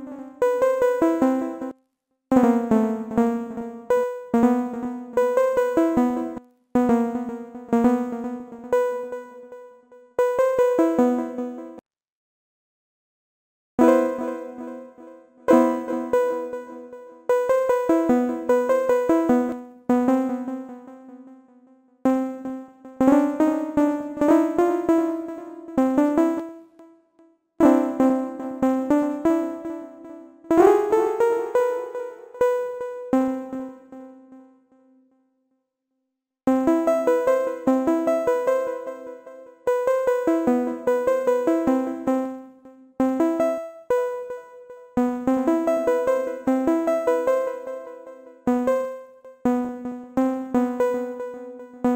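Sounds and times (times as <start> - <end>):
synthesizer plucky arpeggio: 13.8 - 21.3, 45.2 - 48.8.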